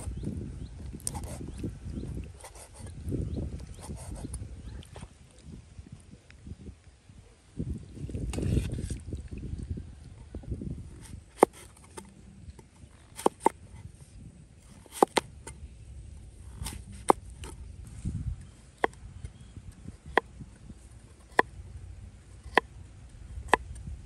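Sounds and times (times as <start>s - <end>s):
cleaver chopping on wooden block: 13.2s - 13.6s, 14.9s - 15.3s, 21.2s - 21.5s, 22.5s - 22.7s
low muffled rumbling: 15.3s - 24.0s.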